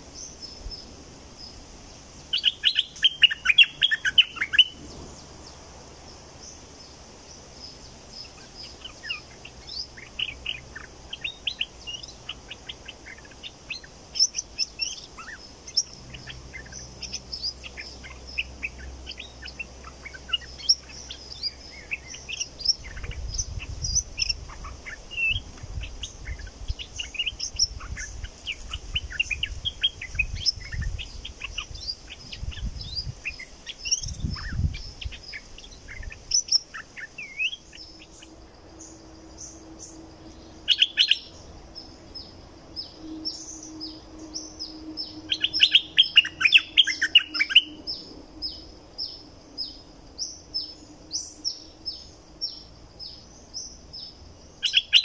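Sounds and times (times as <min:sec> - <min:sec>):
bulbul chirping and singing: 0:00.0 - 0:55.0.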